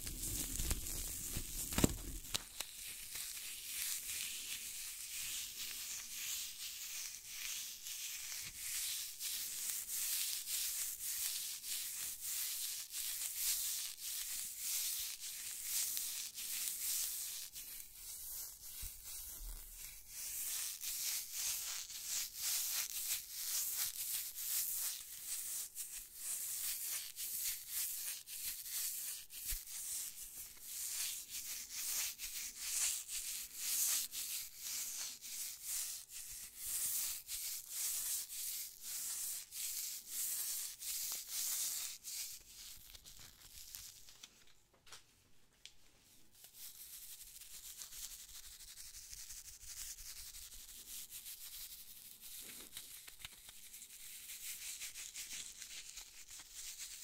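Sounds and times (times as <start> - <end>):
fingertips rubbing on microphone: 0.0 - 2.6.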